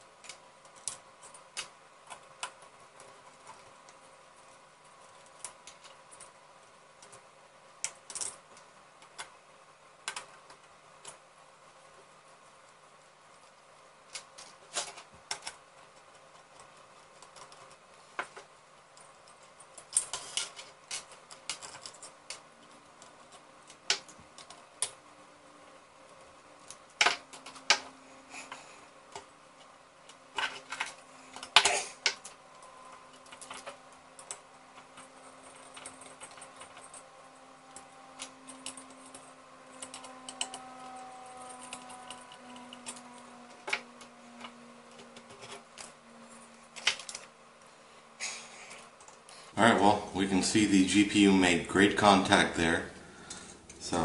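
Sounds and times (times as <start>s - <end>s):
faint steady hum: 0.0s - 54.0s
small metal parts clicking: 0.2s - 4.0s, 4.9s - 9.3s, 10.0s - 11.2s, 13.4s - 25.0s, 26.0s - 47.3s.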